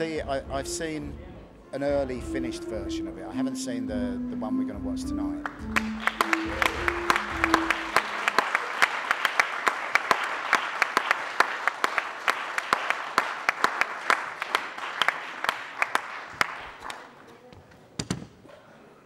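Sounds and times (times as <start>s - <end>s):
music: 0.0s - 9.0s
audience applauding: 5.4s - 17.3s.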